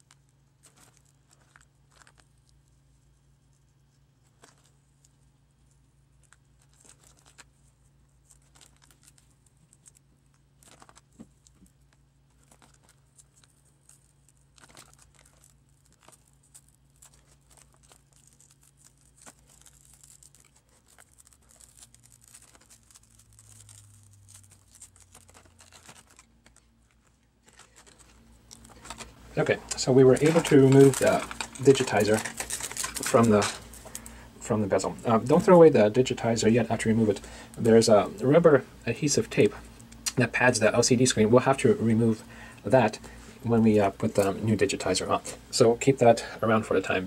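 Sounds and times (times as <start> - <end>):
low steady hum: 0.0 - 47.0
glass crackling and tape tearing: 8.3 - 34.1.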